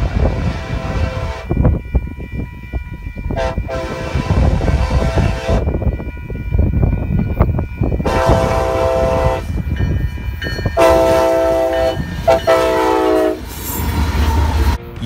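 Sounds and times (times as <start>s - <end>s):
locomotive air horn blasts: 0.0s - 1.5s, 3.4s - 5.6s, 8.0s - 9.5s, 10.8s - 13.4s
locomotive engine rumble: 0.0s - 15.0s
train wheels on rails: 0.0s - 15.0s.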